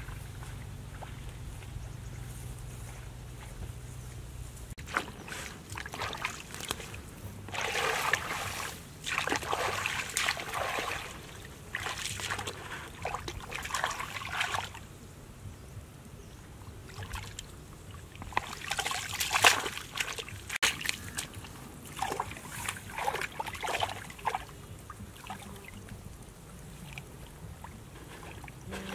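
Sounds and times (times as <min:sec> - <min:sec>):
hands splashing muddy water: 0:04.8 - 0:14.8, 0:18.2 - 0:24.5.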